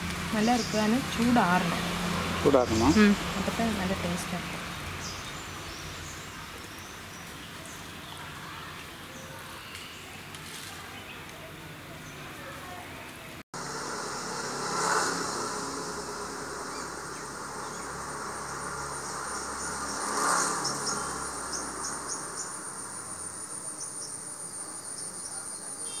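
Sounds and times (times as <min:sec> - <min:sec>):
rushing noise: 0:13.6 - 0:25.2
insects droning: 0:13.6 - 0:26.0
short insect chirps: 0:13.6 - 0:26.0.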